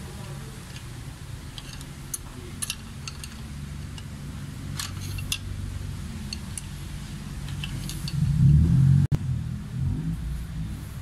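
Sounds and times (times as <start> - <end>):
steady low hum: 0.0 - 11.0
metal tools clinking: 1.5 - 4.1, 4.7 - 5.5, 7.4 - 8.3.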